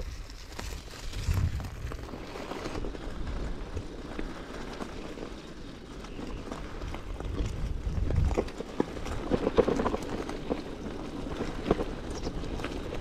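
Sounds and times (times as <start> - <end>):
bicycle tyre noise on path: 0.0 - 13.0
small rattles and clicks: 0.0 - 13.0
wind rumble on microphone: 0.0 - 13.0.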